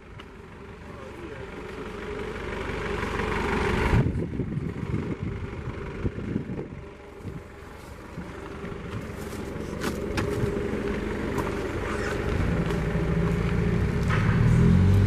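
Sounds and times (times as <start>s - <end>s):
vehicle engine running: 0.0s - 15.0s.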